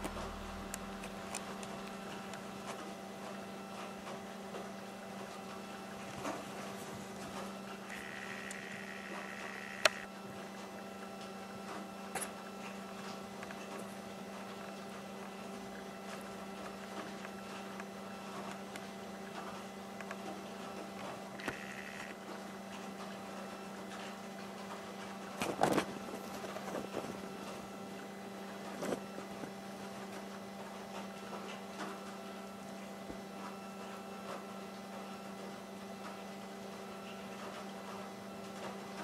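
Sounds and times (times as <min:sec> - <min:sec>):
steady electrical hum: 0:00.0 - 0:39.0
flat high tone: 0:07.9 - 0:10.1.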